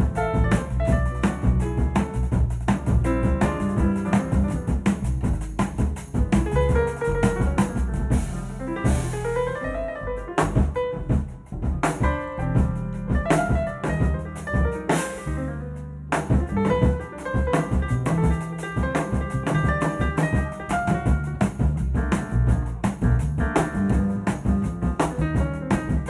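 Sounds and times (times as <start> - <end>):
drum kit cymbals: 0.0 - 9.6, 10.4 - 15.5, 16.2 - 26.0
jazz piano improvising: 0.0 - 26.0
upright double bass: 0.0 - 26.0.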